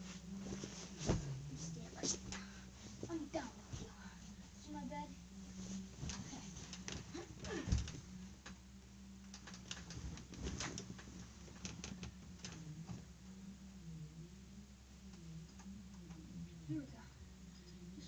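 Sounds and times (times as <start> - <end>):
steady low hum: 0.0 - 18.0
clicks taps and rustling on bed: 6.0 - 8.6, 9.2 - 13.1.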